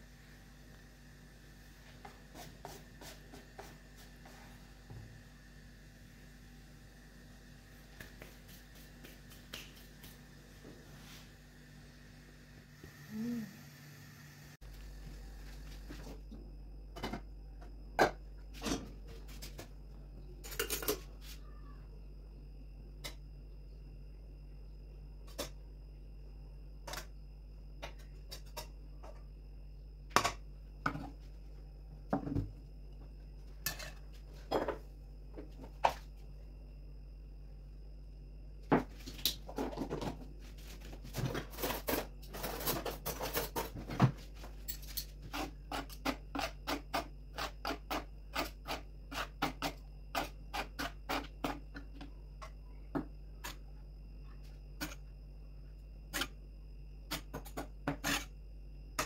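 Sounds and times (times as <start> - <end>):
metal spoon scraping on metal: 57.9 - 58.3.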